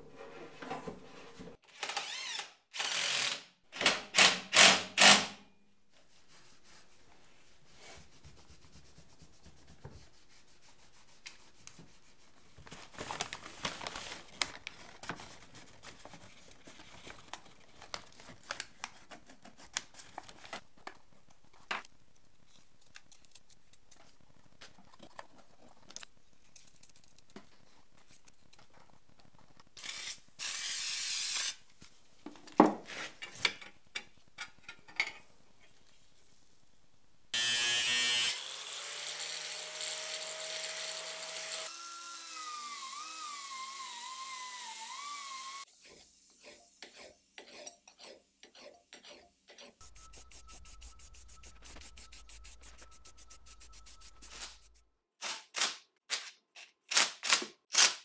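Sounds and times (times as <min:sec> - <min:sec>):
cloth rag wiping metal housing: 0:06.0 - 0:12.6, 0:49.8 - 0:54.8.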